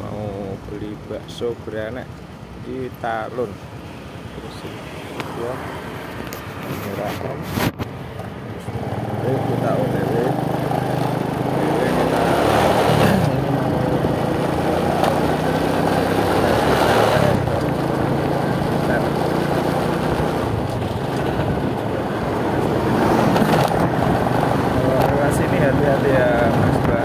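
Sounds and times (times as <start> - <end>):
wind and road noise: 0.0 - 27.0
motorcycle engine running: 8.6 - 27.0.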